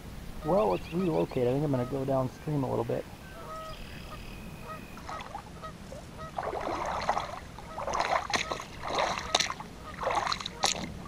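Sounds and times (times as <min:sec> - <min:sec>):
goose honks: 0:01.6 - 0:02.3, 0:03.4 - 0:06.6, 0:07.6 - 0:10.8
wading steps splashing in water: 0:05.0 - 0:05.5, 0:06.2 - 0:11.0.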